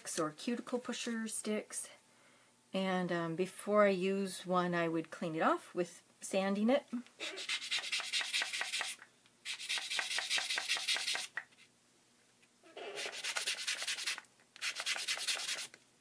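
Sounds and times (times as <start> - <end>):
wooden stick scratching on sanding pad: 7.2 - 11.3, 12.8 - 15.7.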